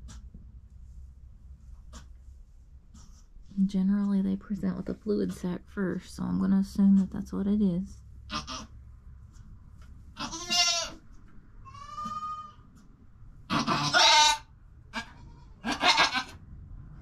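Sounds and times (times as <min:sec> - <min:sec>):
goat bleating: 0:08.3 - 0:08.7, 0:10.2 - 0:11.0, 0:11.7 - 0:12.6, 0:13.5 - 0:16.4.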